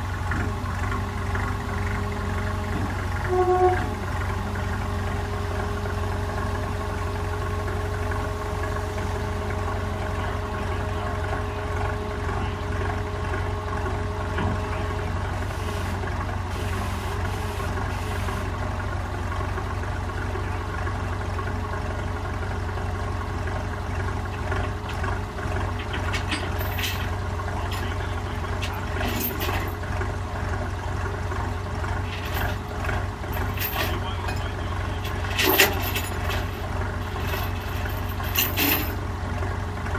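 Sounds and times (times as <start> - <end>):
diesel engine idling: 0.0 - 39.9
sharp clanks: 25.8 - 29.8, 33.3 - 39.0.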